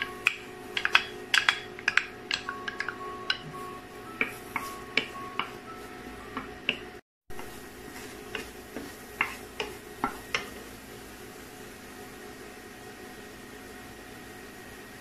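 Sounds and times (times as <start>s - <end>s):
wooden spatula scraping pan: 7.4s - 10.5s.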